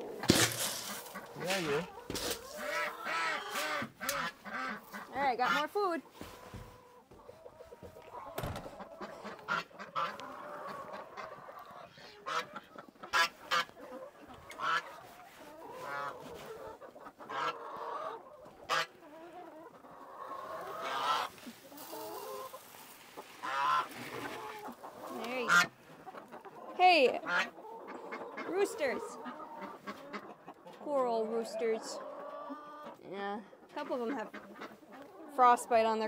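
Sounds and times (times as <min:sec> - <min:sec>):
geese honking: 0:00.0 - 0:06.0, 0:15.6 - 0:19.0, 0:19.9 - 0:32.9
chickens clucking: 0:00.0 - 0:36.0.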